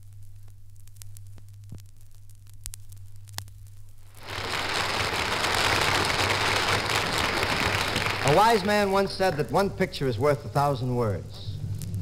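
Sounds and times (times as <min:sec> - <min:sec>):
record clicks and crackle: 0:00.0 - 0:09.8, 0:11.2 - 0:12.0
low steady hum: 0:00.0 - 0:12.0
loud even rush of noise: 0:04.2 - 0:09.1.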